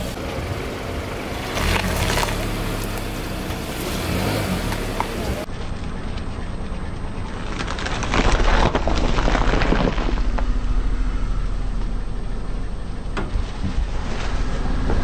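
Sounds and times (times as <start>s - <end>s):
car engine running: 0.0s - 8.2s, 10.0s - 15.0s
tyre crushing cauliflower: 7.4s - 10.5s.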